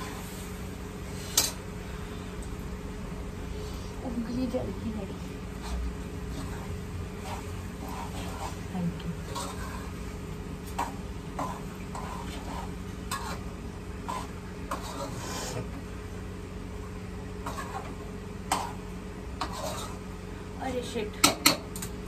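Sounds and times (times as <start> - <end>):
steady low hum: 0.0 - 22.0
spoon scraping a pan: 1.1 - 1.6, 5.6 - 15.8, 17.4 - 20.2.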